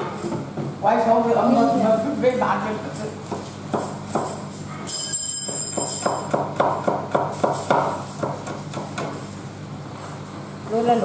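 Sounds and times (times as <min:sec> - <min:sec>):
blade knocking in food preparation: 0:02.8 - 0:09.3
high metallic ringing: 0:04.3 - 0:06.4.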